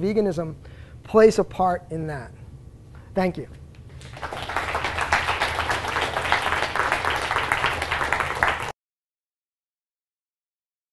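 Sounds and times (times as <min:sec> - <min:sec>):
audience applauding: 0:04.0 - 0:08.8.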